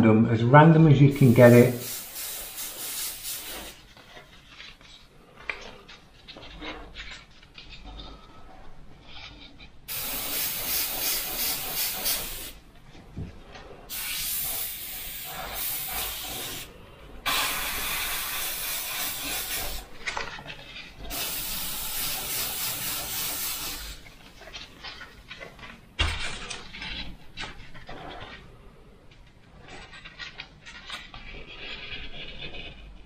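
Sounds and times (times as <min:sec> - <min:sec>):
airbrush hissing: 0:01.1 - 0:04.0, 0:09.9 - 0:12.6, 0:13.9 - 0:19.9, 0:21.1 - 0:24.1.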